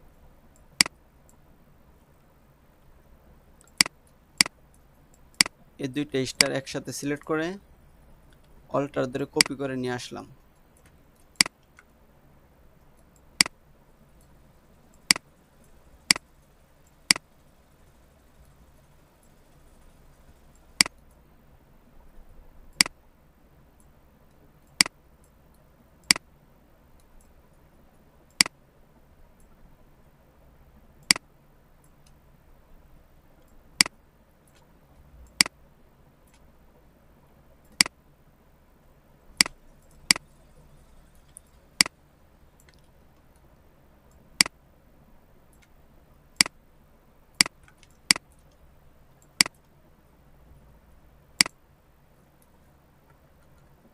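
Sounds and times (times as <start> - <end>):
faint low hum: 0.0 - 53.9
computer mouse clicking: 0.5 - 1.4, 3.6 - 5.6, 10.5 - 11.9, 12.9 - 13.6, 20.2 - 21.2, 22.7 - 23.0, 23.8 - 25.4, 28.3 - 28.6, 31.0 - 31.2, 33.4 - 35.6, 37.6 - 38.0, 39.4 - 40.4, 42.6 - 43.5, 46.4 - 46.6, 49.2 - 49.8, 53.1 - 53.8.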